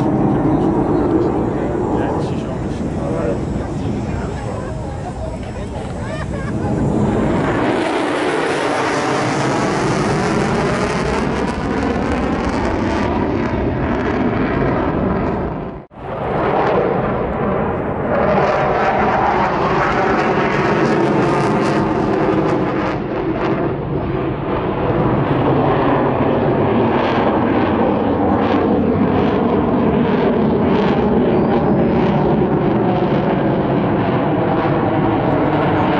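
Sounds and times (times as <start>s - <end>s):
jet engines roaring: 0.0s - 35.9s.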